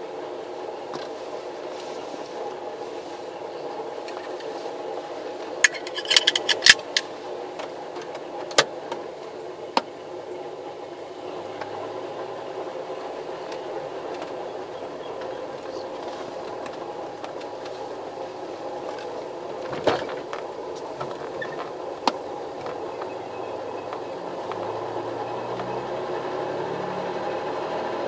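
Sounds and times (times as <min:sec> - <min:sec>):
car engine running at low revs: 0:00.0 - 0:28.0
sharp clicks and clunks: 0:05.6 - 0:09.9, 0:18.9 - 0:24.8.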